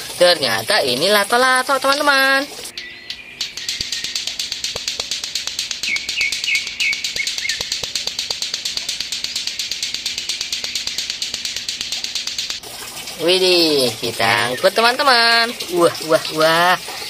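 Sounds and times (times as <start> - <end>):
plastic clacker balls clacking: 3.4 - 12.6.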